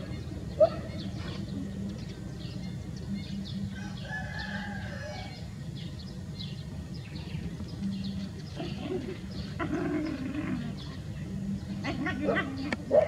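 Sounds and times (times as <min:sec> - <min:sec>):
rooster crowing: 0:03.8 - 0:05.4.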